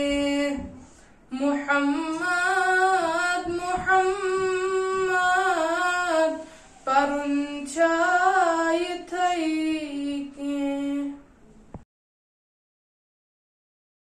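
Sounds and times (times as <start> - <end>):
boy singing unaccompanied: 0.0 - 11.3
breath: 0.8 - 1.3, 6.4 - 6.9.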